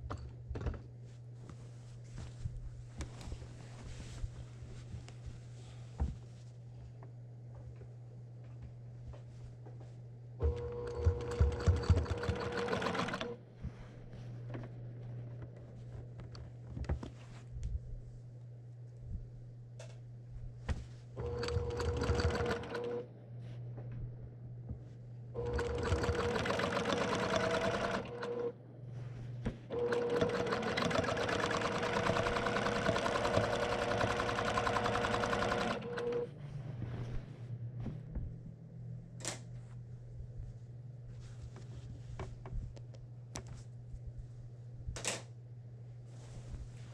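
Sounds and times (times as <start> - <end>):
low steady hum: 0.0 - 30.0, 31.2 - 46.9
faint rustling of quilt: 1.0 - 6.9, 46.0 - 46.9
sewing machine stitching: 10.4 - 13.4, 21.2 - 23.0, 25.4 - 28.5, 29.8 - 36.3.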